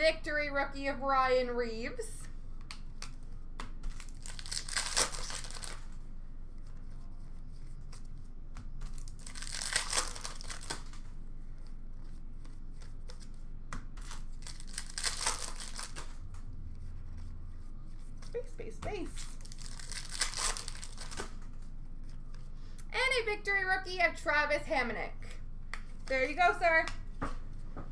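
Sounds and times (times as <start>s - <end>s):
cards being handled: 2.6s - 22.5s
plastic wrappers tearing and crinkling: 3.9s - 6.0s, 8.8s - 11.1s, 14.0s - 16.3s, 19.0s - 21.6s.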